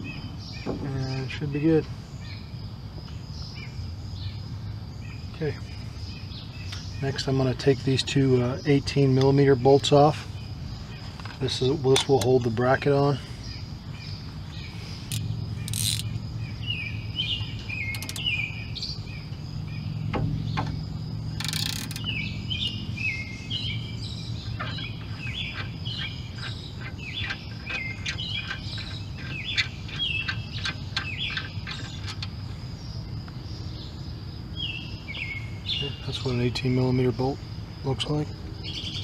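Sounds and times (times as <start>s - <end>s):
low steady hum: 0.0s - 39.0s
songbird chirping: 0.0s - 39.0s
ratchet wrench clicking: 15.1s - 16.2s, 17.9s - 18.3s, 21.3s - 22.2s.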